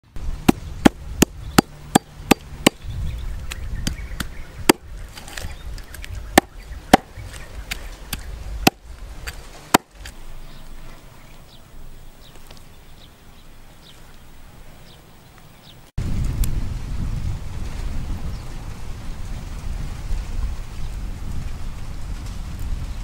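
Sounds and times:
knife chopping on wooden block: 0:09.7 - 0:09.9.

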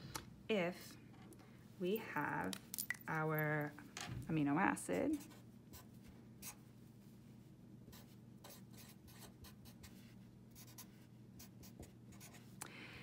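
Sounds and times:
low steady hum: 0:00.0 - 0:13.0
marker scratching on paper: 0:07.9 - 0:12.5.

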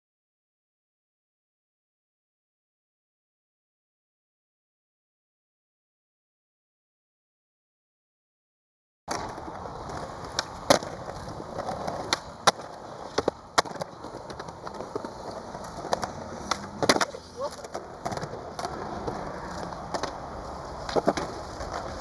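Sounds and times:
skateboard clacks: 0:09.1 - 0:22.0
skateboard wheels rolling: 0:09.1 - 0:22.0.

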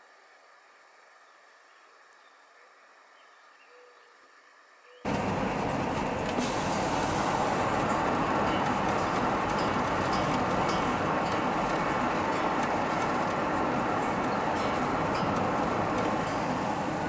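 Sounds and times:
faint hiss: 0:00.0 - 0:05.1
car road noise from inside: 0:05.1 - 0:17.0.

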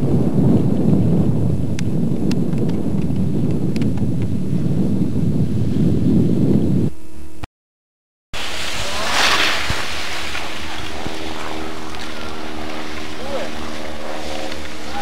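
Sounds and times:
wind buffeting microphone: 0:00.0 - 0:07.1, 0:08.4 - 0:15.0
faint machine hum: 0:08.4 - 0:15.0.

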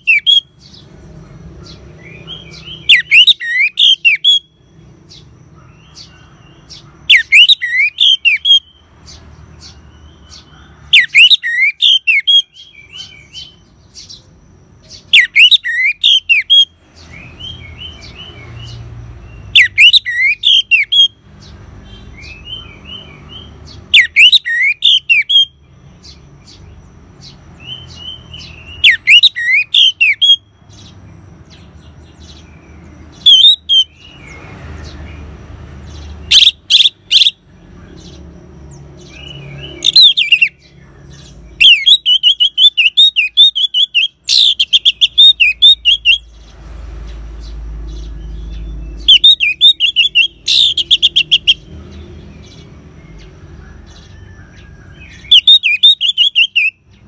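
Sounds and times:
thrush singing whistled phrases: 0:00.0 - 0:00.6, 0:02.1 - 0:04.6, 0:07.1 - 0:08.8, 0:10.9 - 0:13.6, 0:15.1 - 0:18.1, 0:19.4 - 0:21.2, 0:22.2 - 0:25.6, 0:27.6 - 0:30.5, 0:33.1 - 0:34.3, 0:36.2 - 0:37.5, 0:39.1 - 0:40.7, 0:41.6 - 0:46.3, 0:48.5 - 0:51.7, 0:55.0 - 0:56.9.

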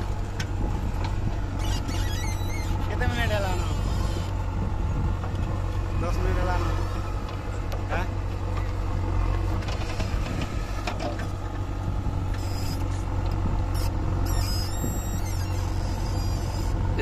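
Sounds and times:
diesel engine droning: 0:00.0 - 0:17.0.

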